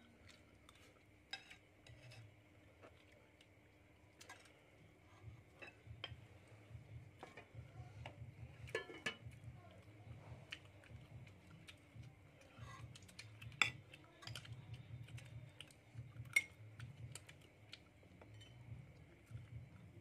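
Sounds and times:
tableware clinking on plates: 0:08.7 - 0:09.2.

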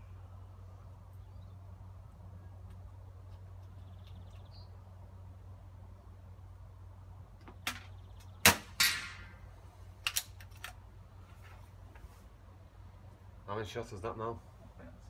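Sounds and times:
air rifle shot crack: 0:08.4 - 0:09.4
pellet hitting steel target: 0:08.4 - 0:09.4.

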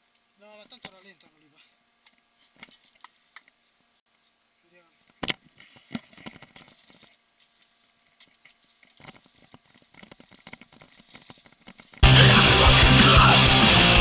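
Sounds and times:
bike rattling over rocks: 0:08.9 - 0:12.0.

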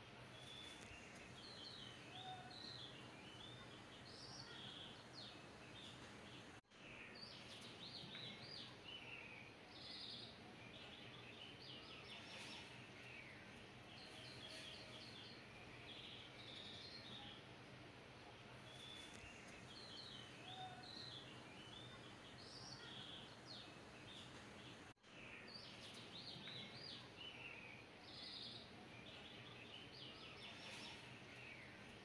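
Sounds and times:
low steady hiss: 0:00.0 - 0:32.0
small birds chirping: 0:00.0 - 0:32.0.

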